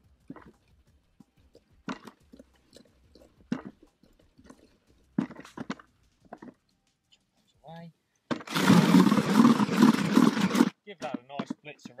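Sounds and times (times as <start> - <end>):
soil rubbed through a sieve: 8.5 - 10.7.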